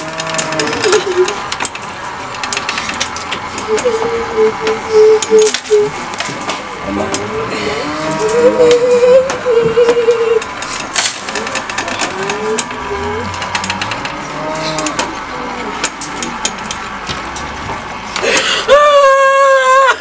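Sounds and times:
people wailing: 0.0 - 1.6, 3.5 - 6.1, 6.7 - 10.6, 11.3 - 16.6, 18.2 - 20.0.

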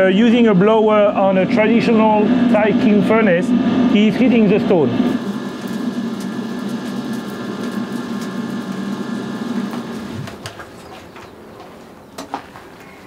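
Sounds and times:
electric blower motor hum: 1.9 - 10.8.

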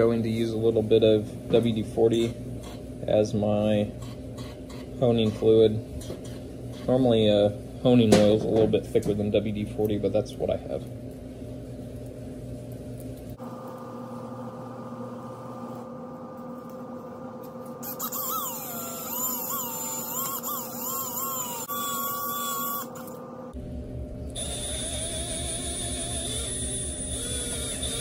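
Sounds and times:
cordless drill high whine: 17.8 - 23.2, 24.4 - 28.0
wavering squealing tones: 17.8 - 23.2, 24.4 - 28.0.

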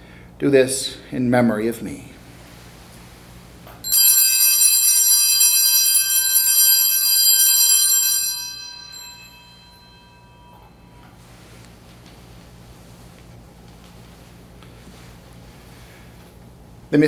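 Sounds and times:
small brass bells ringing: 3.8 - 11.2.

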